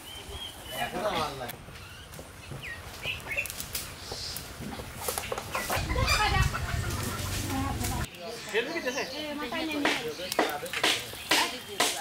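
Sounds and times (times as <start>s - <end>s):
wood fire crackling: 0.0s - 12.0s
chickens clucking: 4.6s - 8.1s
low rumble: 5.7s - 8.1s.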